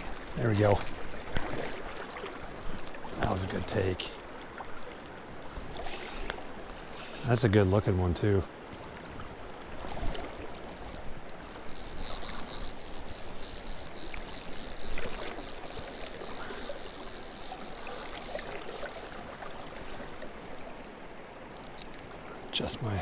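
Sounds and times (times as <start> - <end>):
shallow river current rushing: 0.0 - 23.0.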